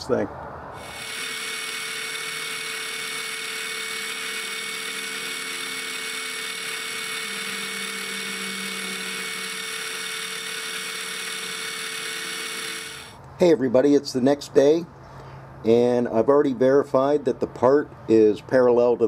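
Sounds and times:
mini mill whining: 0:00.8 - 0:13.2.

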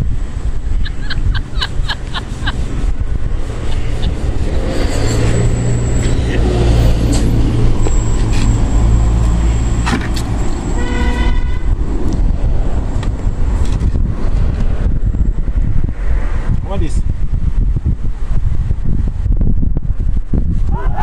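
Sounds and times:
steady low rumble: 0:00.0 - 0:20.6
vehicle horn toot: 0:10.6 - 0:11.8.

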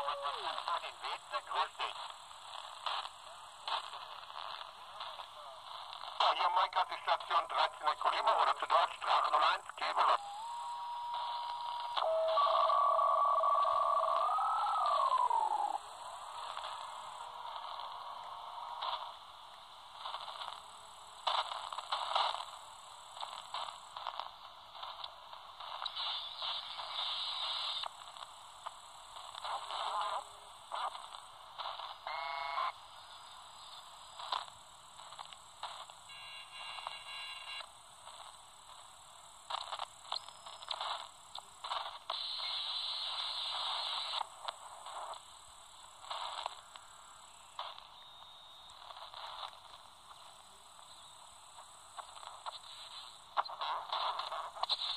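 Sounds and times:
radio hiss and crackle: 0:00.0 - 0:54.9
steady whistle: 0:10.2 - 0:15.9.

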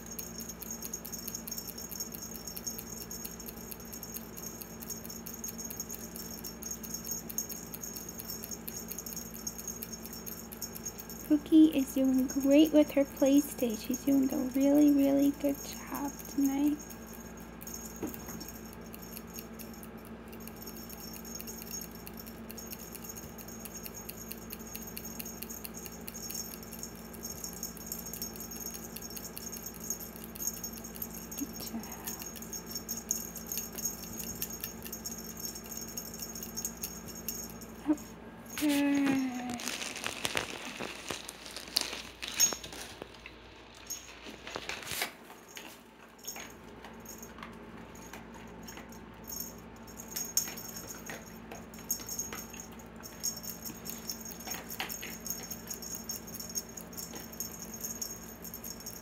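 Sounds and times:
faint rustles and ticks: 0:00.0 - 0:59.0
crinkling and rattling: 0:38.5 - 0:49.0.

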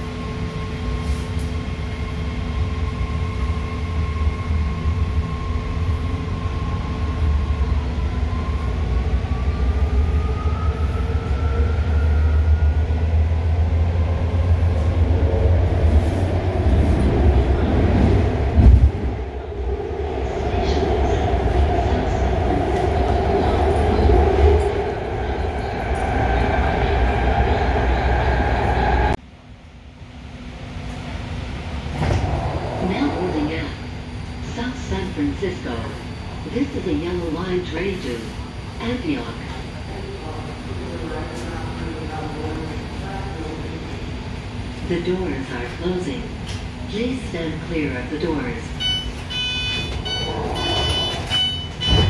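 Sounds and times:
train wheels rumbling on track: 0:11.4 - 0:29.2, 0:30.6 - 0:52.0.

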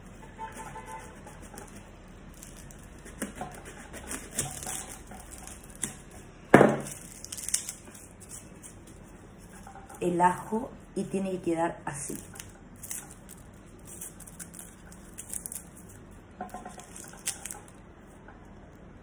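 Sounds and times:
knife cutting garlic: 0:00.5 - 0:08.8.

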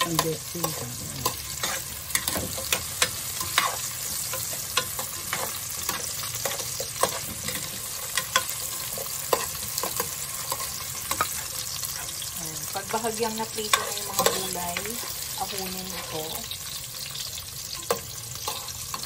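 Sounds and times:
vegetables sizzling in oil: 0:00.0 - 0:19.0
spoon scraping and knocking pot: 0:00.1 - 0:12.1.

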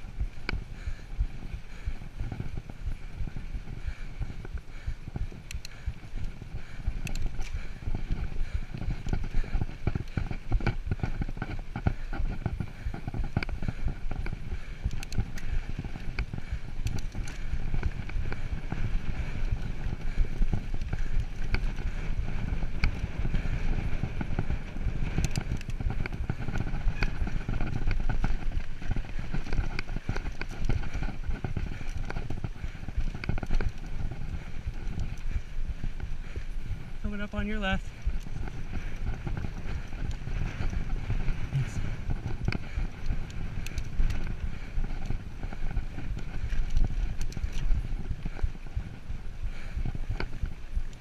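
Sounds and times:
bike tyres rumbling on dirt: 0:00.0 - 0:51.0
bike clattering over bumps: 0:01.7 - 0:37.0.

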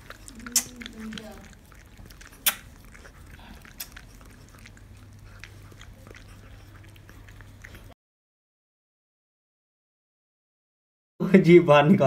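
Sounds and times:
dog licking wet clicks: 0:00.0 - 0:08.0.

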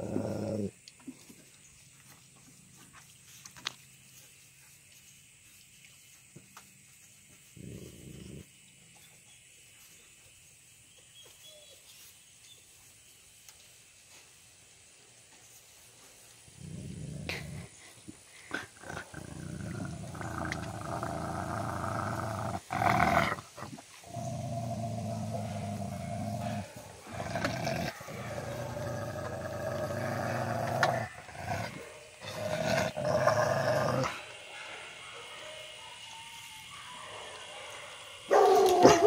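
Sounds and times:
dogs growling: 0:00.0 - 0:00.8, 0:07.5 - 0:08.5, 0:16.6 - 0:34.6
dogs snarling: 0:00.0 - 0:00.8, 0:18.4 - 0:34.9, 0:38.3 - 0:39.0.

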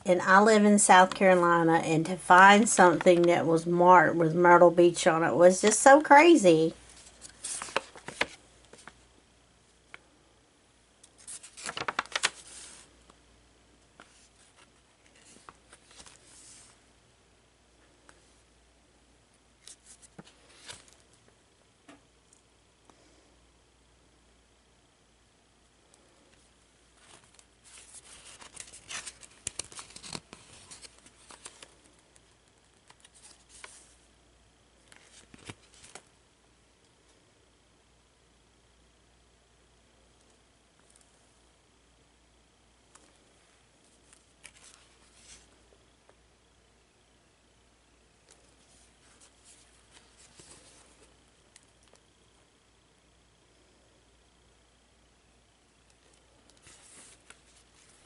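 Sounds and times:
paper pages rustling: 0:01.0 - 0:03.6, 0:06.8 - 0:09.0, 0:11.0 - 0:12.9, 0:13.9 - 0:16.8, 0:19.6 - 0:21.2, 0:27.0 - 0:34.0, 0:34.8 - 0:36.1, 0:43.9 - 0:45.5, 0:48.3 - 0:52.0, 0:56.0 - 0:58.0.

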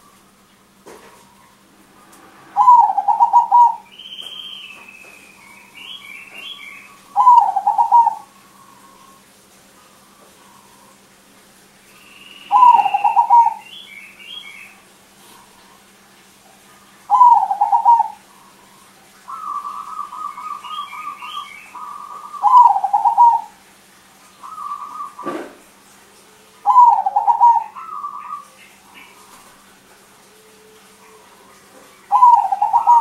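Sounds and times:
dove cooing: 0:02.5 - 0:04.4, 0:05.0 - 0:11.0, 0:12.5 - 0:13.8, 0:16.9 - 0:23.6, 0:24.4 - 0:25.6, 0:26.2 - 0:33.0.

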